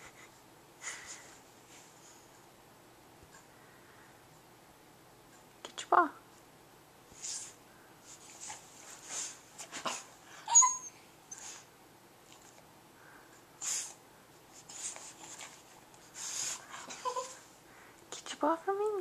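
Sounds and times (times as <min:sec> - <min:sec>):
dog whining: 0:09.9 - 0:11.6, 0:16.7 - 0:17.4
dog snuffling and huffing: 0:13.6 - 0:17.4.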